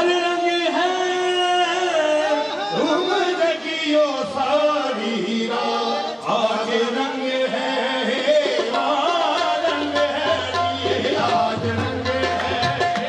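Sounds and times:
person singing devotional music: 0.0s - 13.0s
tabla drumming: 8.1s - 13.0s.

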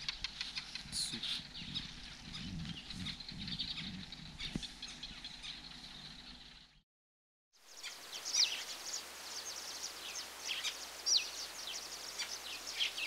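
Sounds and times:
small birds chirping and twittering: 0.0s - 6.8s, 7.6s - 13.0s
steady background hiss: 7.6s - 13.0s.

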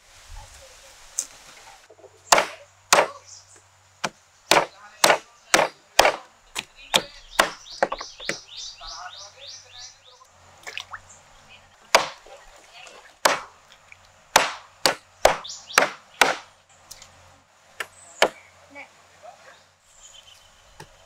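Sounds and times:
knife chopping on wooden board: 2.3s - 3.2s, 4.0s - 8.4s, 11.9s - 12.2s, 13.2s - 13.5s, 14.3s - 16.5s.

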